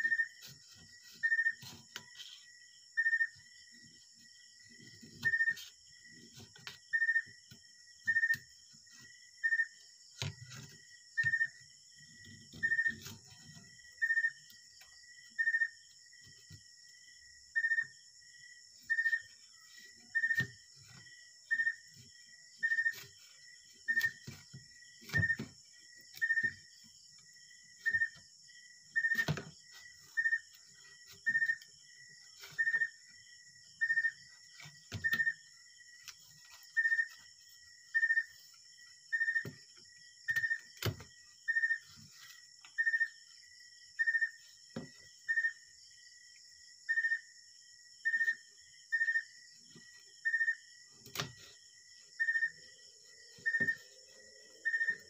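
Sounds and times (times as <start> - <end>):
insect chirping rhythmically: 0.0 - 55.0.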